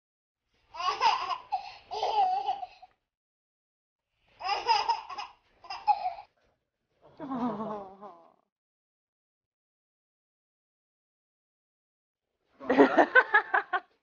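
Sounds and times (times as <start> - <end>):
baby laughing: 0.7 - 2.9, 4.4 - 6.3.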